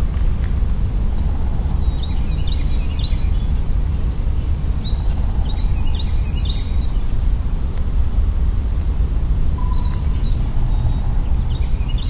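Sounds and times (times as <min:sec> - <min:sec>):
songbirds chirping and whistling: 0:01.4 - 0:07.0, 0:09.6 - 0:12.0.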